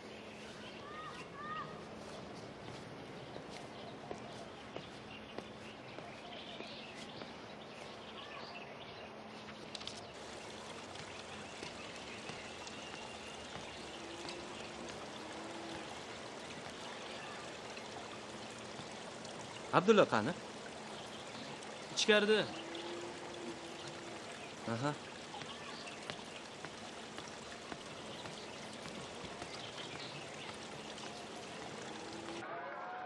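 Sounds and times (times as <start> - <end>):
running water hiss: 9.3 - 32.4.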